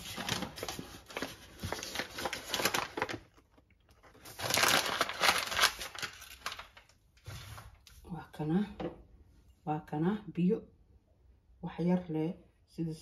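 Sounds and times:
packaging crinkling and rustling: 0.0 - 7.8.

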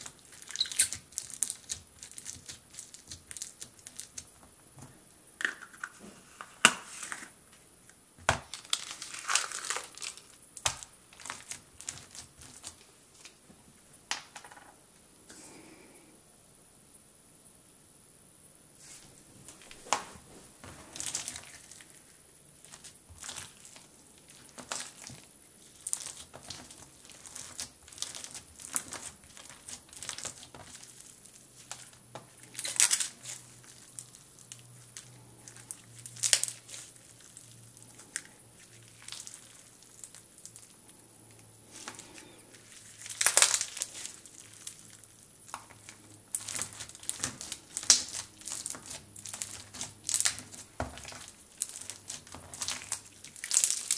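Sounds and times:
slime crunching and crackling: 0.0 - 4.4, 8.4 - 13.3, 20.6 - 53.9.

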